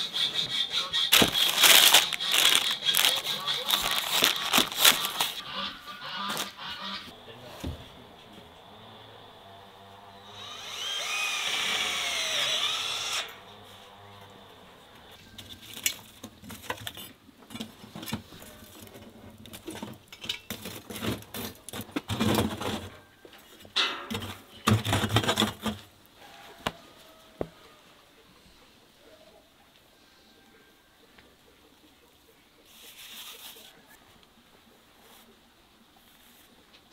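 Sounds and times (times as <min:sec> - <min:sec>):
metal tool raking embers: 0:00.4 - 0:05.4
power drill whining: 0:10.1 - 0:14.4.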